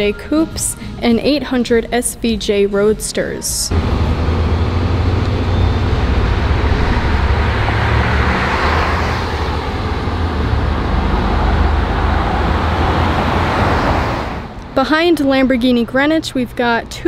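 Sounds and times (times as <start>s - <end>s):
truck engine driving past: 3.7s - 14.8s
street traffic: 3.7s - 17.0s.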